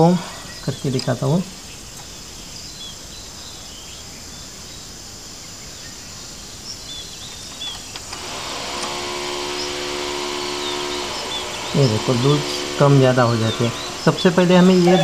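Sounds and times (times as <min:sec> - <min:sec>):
faint bird chirps: 0:00.0 - 0:08.1
background hiss: 0:00.0 - 0:15.0
steady machine hum: 0:07.8 - 0:15.0.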